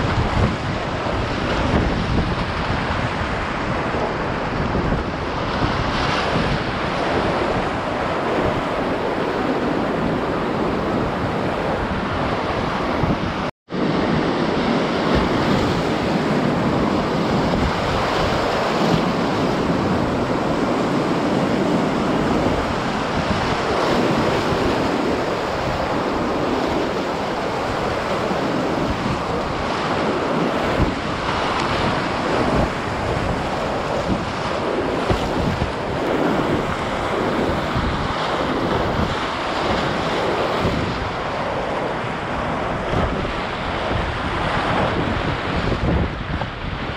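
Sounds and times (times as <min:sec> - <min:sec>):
wind buffeting microphone: 0:00.0 - 0:46.9
rushing whitewater rapids: 0:15.1 - 0:46.8.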